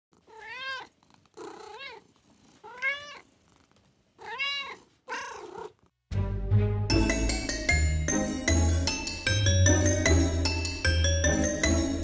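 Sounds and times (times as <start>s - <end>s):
cat meowing: 0.3s - 2.0s, 2.6s - 3.3s, 4.2s - 5.8s
music with bell-like chimes: 6.9s - 12.0s.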